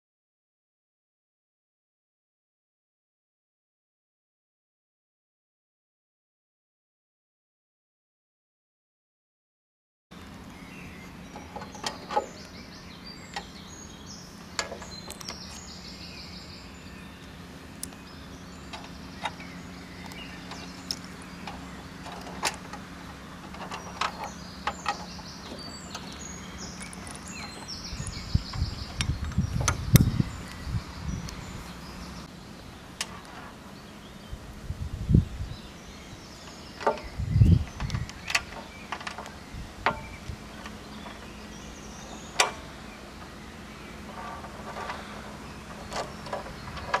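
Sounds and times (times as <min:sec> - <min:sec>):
steady low hum: 0:10.2 - 0:47.0
low thumps and rumbles: 0:18.6 - 0:31.7, 0:36.8 - 0:42.3.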